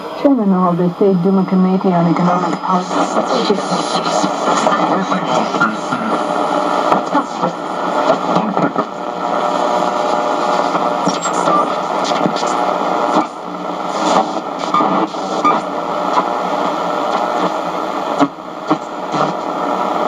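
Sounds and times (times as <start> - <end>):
radio static and hiss: 0.0 - 20.0
faint radio whistles and blips: 11.0 - 12.5, 14.6 - 16.3.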